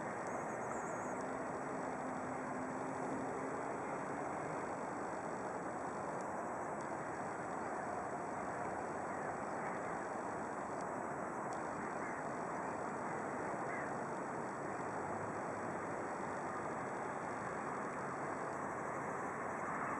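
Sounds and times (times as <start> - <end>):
distant traffic rumble: 0.0 - 19.9
faint bird calls: 11.6 - 14.0.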